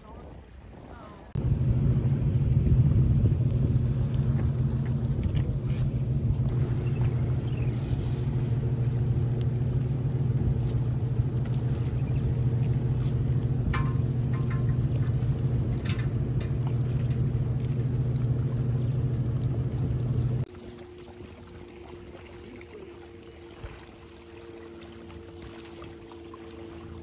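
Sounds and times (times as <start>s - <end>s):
engine idling: 1.4s - 20.4s.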